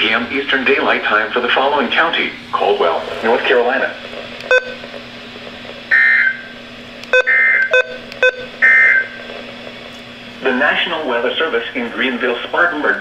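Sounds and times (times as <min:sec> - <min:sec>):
low steady hum: 0:00.0 - 0:13.0
sharp beeps: 0:04.5 - 0:04.8, 0:07.1 - 0:09.1.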